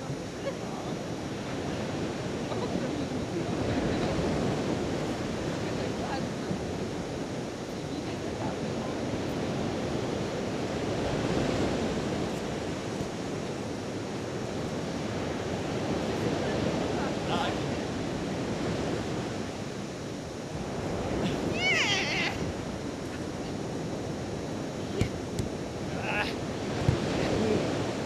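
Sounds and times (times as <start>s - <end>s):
surf on a beach: 0.0s - 28.0s
wind: 0.0s - 28.0s
wind buffeting the microphone: 0.0s - 28.0s
person shouting: 21.2s - 22.4s.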